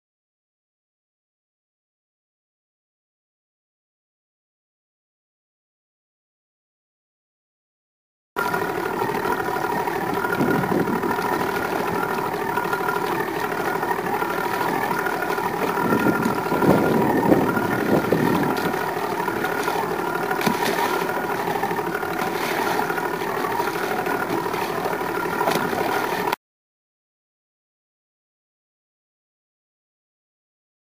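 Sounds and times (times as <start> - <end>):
boat motor idling: 8.4 - 26.4
water: 8.4 - 26.4
wind noise: 10.3 - 11.2, 15.7 - 18.8.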